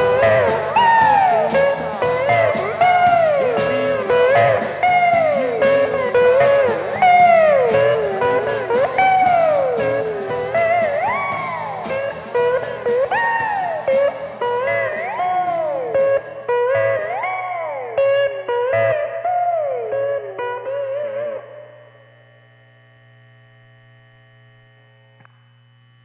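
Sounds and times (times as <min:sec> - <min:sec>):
drum ticks: 0:00.0 - 0:17.6
rock band backing track: 0:00.0 - 0:21.4
electric slide guitar: 0:00.0 - 0:22.5.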